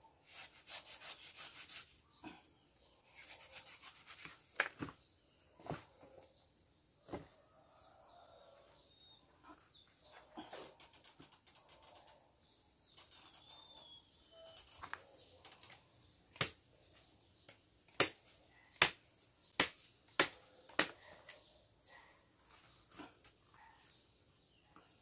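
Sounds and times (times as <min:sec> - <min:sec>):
faint bird chirps: 0:05.2 - 0:17.1
machete chopping on wood: 0:17.9 - 0:18.2, 0:18.8 - 0:21.0.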